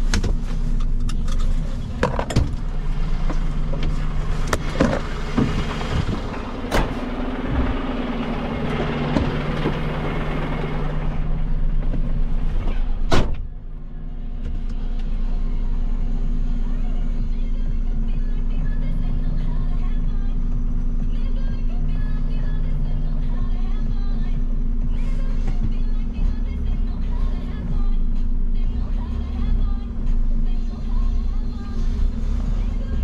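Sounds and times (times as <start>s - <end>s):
diesel truck engine idling: 0.0s - 33.0s
cab door slamming: 2.0s - 10.0s, 11.8s - 13.5s.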